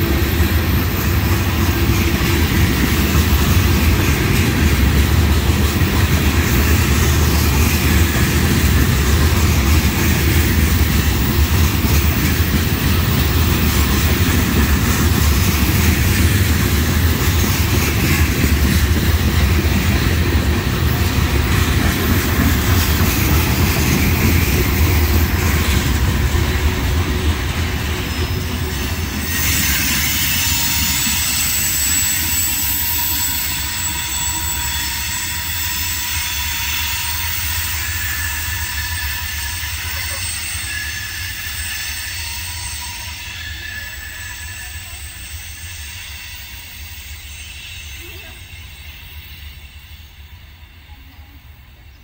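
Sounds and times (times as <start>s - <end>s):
train wheels rumbling on rails: 0.0s - 52.0s
wheel squeal: 28.0s - 50.2s.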